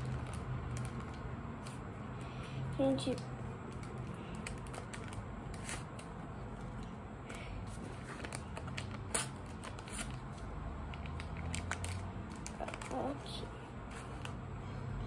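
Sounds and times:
sticker packets crinkling: 0.0 - 1.9, 2.9 - 13.4.

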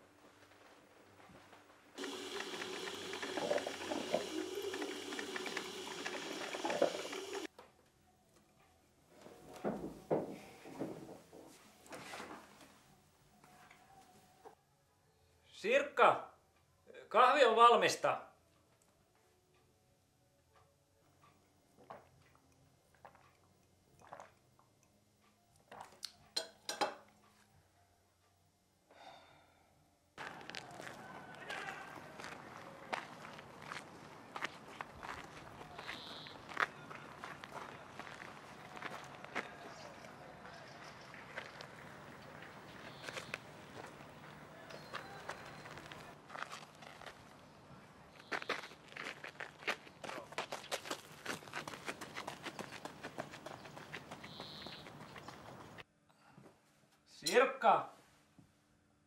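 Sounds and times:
coffee maker gurgling and hissing: 2.0 - 7.5.

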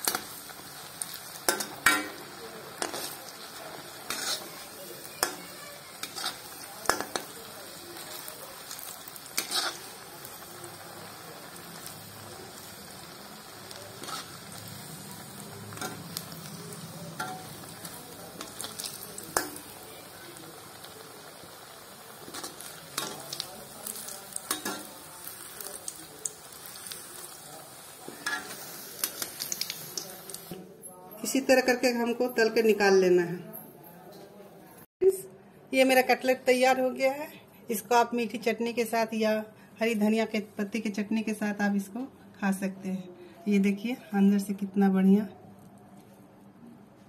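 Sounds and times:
cutlets deep-frying in oil: 0.0 - 30.6
metal spoon clinking on pan: 17.1 - 17.6, 18.4 - 19.7, 24.4 - 24.9.

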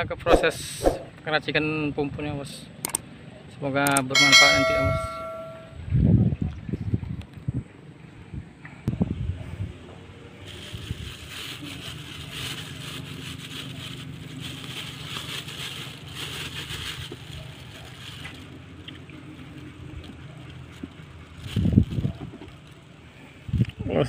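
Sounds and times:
plastic bag rustling: 10.4 - 18.6.

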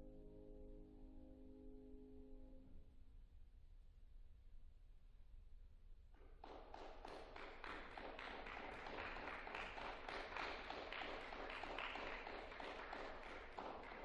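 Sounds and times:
audience applauding: 6.4 - 14.0.

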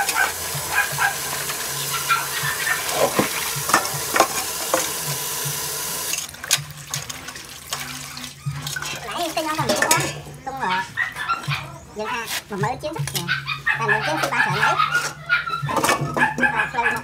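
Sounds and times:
tap water running into bowl: 0.0 - 10.4
hands rinsing leaves splashing: 0.0 - 11.0
small knocks against metal bowl: 8.6 - 10.3.

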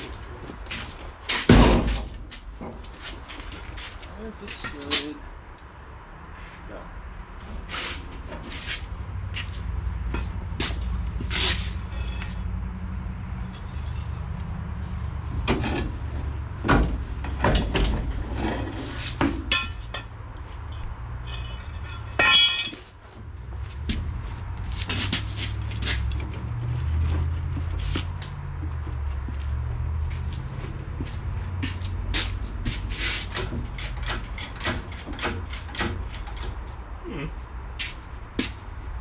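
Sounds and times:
sharp metal clanks and knocks: 16.6 - 20.2, 21.2 - 23.3, 33.2 - 36.7
ringing metallic rattle: 21.2 - 23.2.

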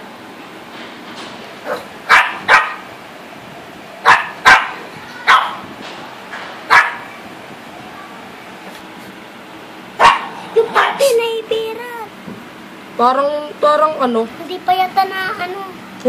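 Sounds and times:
small dog barking: 1.6 - 2.9, 4.0 - 5.7, 6.7 - 7.2, 10.0 - 11.2.

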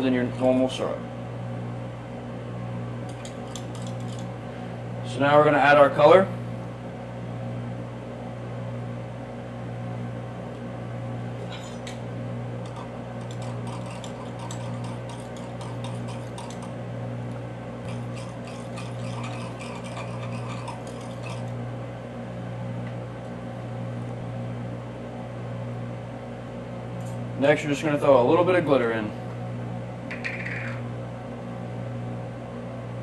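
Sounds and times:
ventilation fan hum: 0.0 - 33.0
metal spatula scraping glass: 12.6 - 16.7, 17.9 - 21.5.

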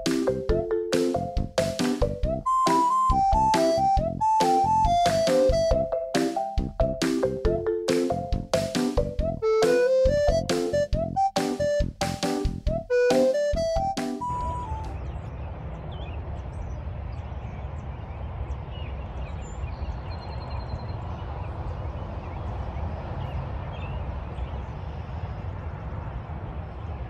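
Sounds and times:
low outdoor rumble: 13.6 - 27.0.

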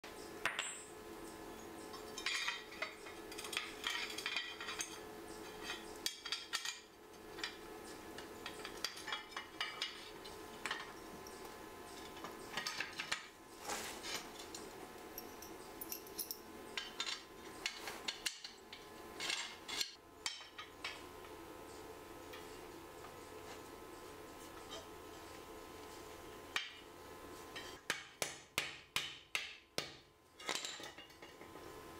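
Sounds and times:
steady hum: 0.0 - 28.0
metal parts clinking and clattering: 2.1 - 7.6, 8.4 - 11.0, 15.2 - 18.6, 30.4 - 31.5.

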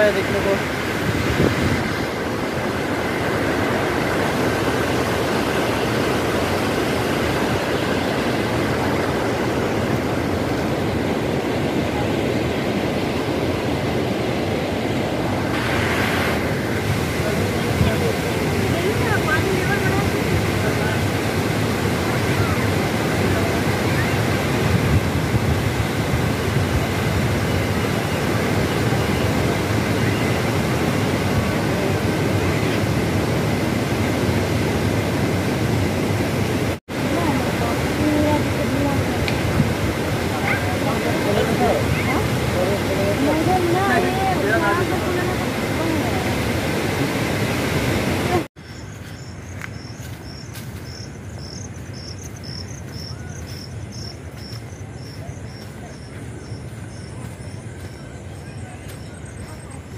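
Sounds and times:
water rushing from dam spillway: 0.0 - 48.5
insect chirping: 48.6 - 59.9.

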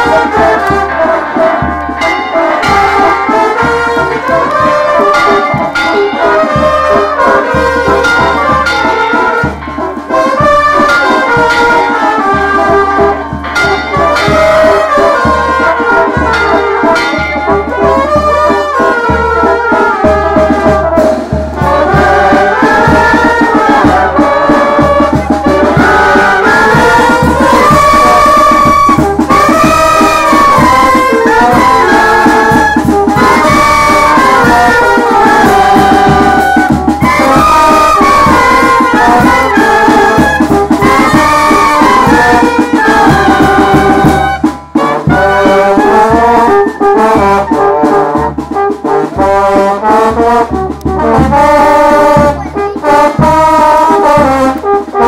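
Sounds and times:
brass band playing: 0.0 - 55.0.

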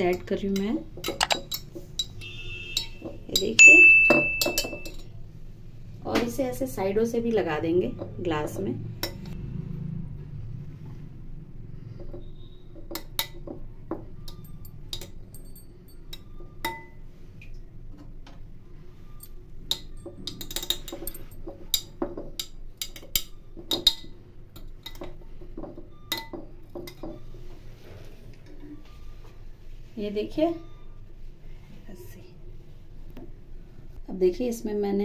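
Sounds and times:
utensil clinking against glass: 0.1 - 5.1, 19.2 - 25.1.

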